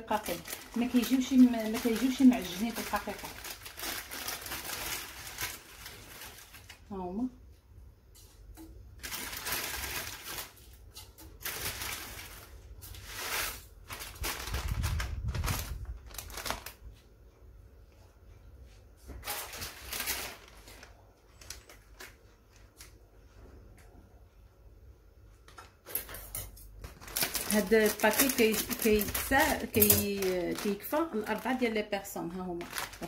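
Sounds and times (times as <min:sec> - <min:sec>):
plastic packet rustling: 0:00.0 - 0:06.9, 0:08.9 - 0:17.0, 0:19.1 - 0:23.0, 0:26.8 - 0:33.0
dried noodles crackling: 0:00.0 - 0:07.3, 0:08.2 - 0:17.1, 0:19.2 - 0:23.0, 0:26.8 - 0:33.0.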